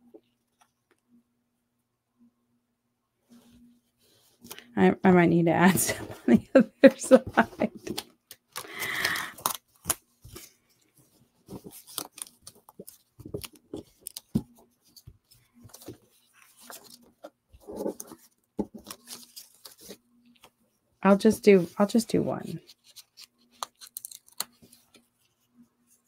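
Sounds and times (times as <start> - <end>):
paper rustling: 7.2 - 26.0.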